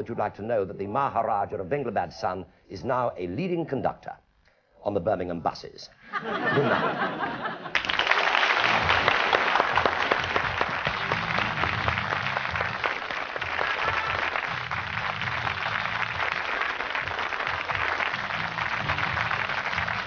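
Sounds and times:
sustained applause: 7.7 - 20.0
theme music with bass line: 10.5 - 20.0.

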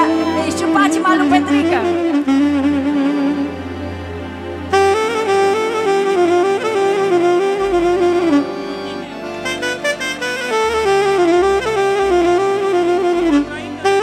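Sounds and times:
bass line: 0.0 - 14.0
live folk band playing: 0.0 - 14.0
wind instrument melody: 0.0 - 14.0.

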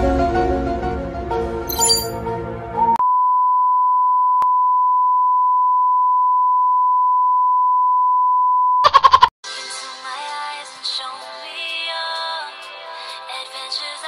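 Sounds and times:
music: 0.0 - 3.0, 9.4 - 14.0.

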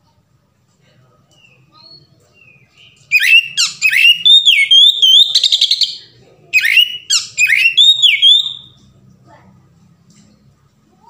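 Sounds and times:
bird singing whistled notes: 1.4 - 8.8
rapid buzzy bird trill: 2.9 - 6.0, 6.6 - 8.8.

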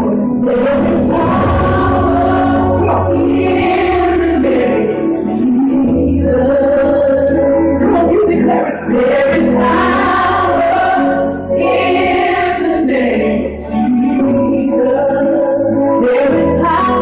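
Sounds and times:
instrumental accompaniment: 0.1 - 6.0
choir singing: 0.4 - 5.6, 8.9 - 14.4.

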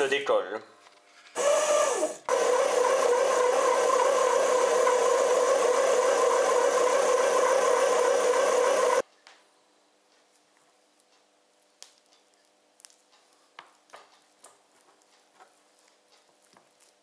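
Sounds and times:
bread machine motor whirring: 1.4 - 9.0.

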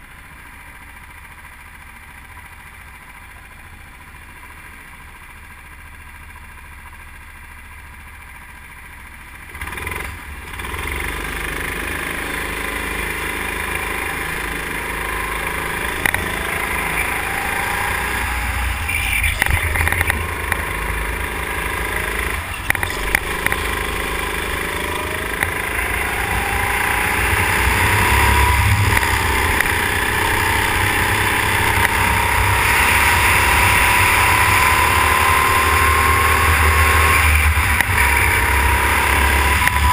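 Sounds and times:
go-kart engine: 0.0 - 39.9.

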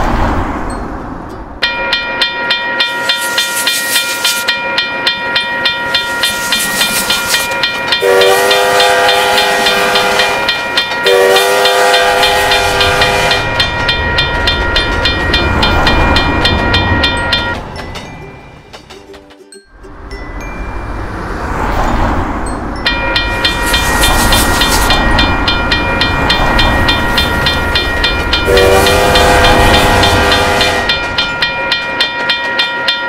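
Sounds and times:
rumble of train wheels: 0.0 - 33.0
railroad crossing bell ringing: 0.6 - 33.0
train horn blasts: 8.0 - 13.6, 28.4 - 31.1.

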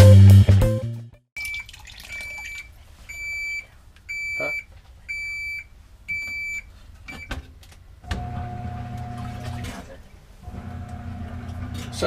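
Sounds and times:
washing machine beeping: 1.4 - 7.4, 8.1 - 9.7.

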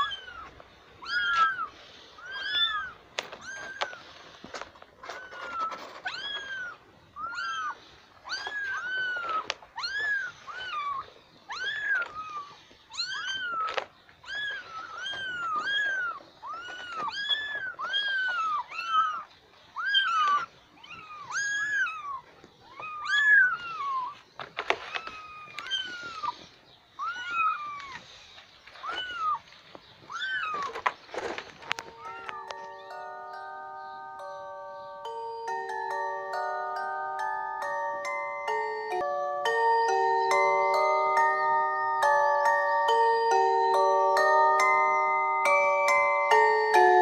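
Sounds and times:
kittens mewing: 0.0 - 4.2, 5.0 - 24.2, 24.8 - 28.1, 28.8 - 30.9.

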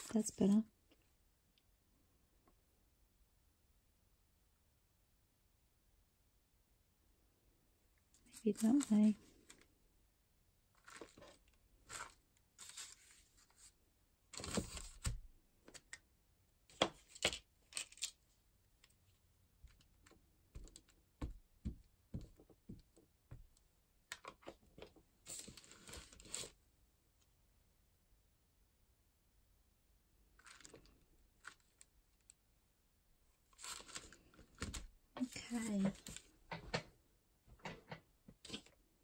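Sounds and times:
paper rustling: 10.8 - 15.8, 25.3 - 26.6, 33.5 - 36.3.

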